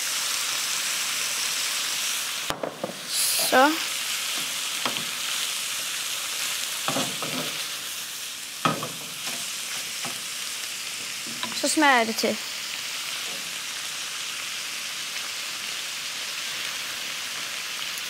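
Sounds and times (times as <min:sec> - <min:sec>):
food sizzling in a frying pan: 0:00.0 - 0:18.0
wooden spoon scraping a pan: 0:02.7 - 0:05.3, 0:06.9 - 0:07.8.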